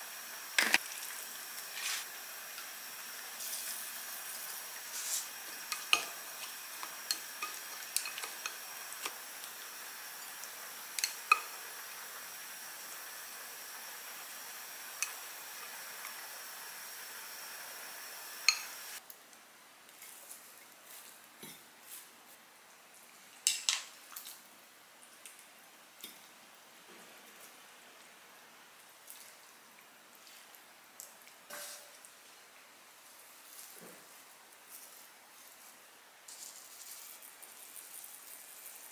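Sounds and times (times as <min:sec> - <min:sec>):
food sizzling in a frying pan: 0:00.0 - 0:19.0, 0:31.5 - 0:32.0, 0:36.3 - 0:38.9.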